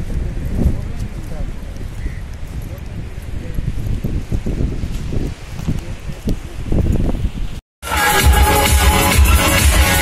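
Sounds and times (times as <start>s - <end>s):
wind on microphone: 0.0s - 7.6s.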